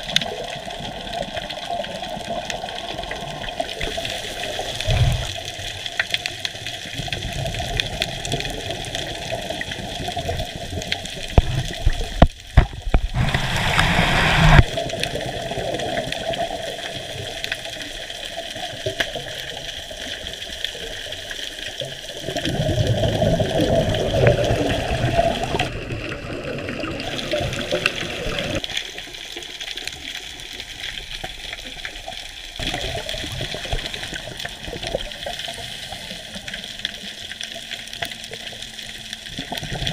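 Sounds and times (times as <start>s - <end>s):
underwater rushing hiss: 0.4s - 6.0s, 12.9s - 18.8s, 22.3s - 25.8s, 32.6s - 37.9s
water surge: 12.7s - 16.2s.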